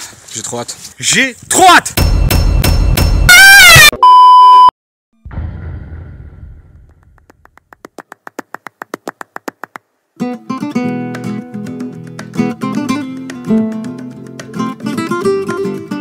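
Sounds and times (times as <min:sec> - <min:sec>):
high beep: 0:03.3 - 0:04.7
strummed acoustic guitar music: 0:10.2 - 0:16.0.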